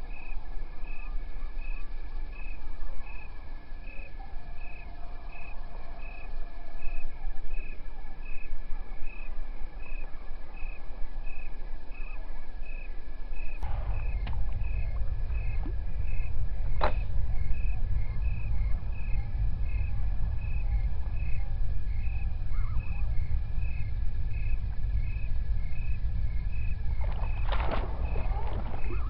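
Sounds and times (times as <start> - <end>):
low rumble: 13.6 - 29.0.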